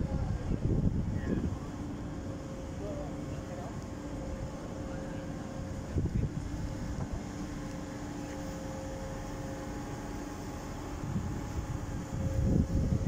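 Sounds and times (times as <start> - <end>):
wind buffeting microphone: 0.0 - 7.6, 10.8 - 13.0
low machinery hum: 0.0 - 13.0.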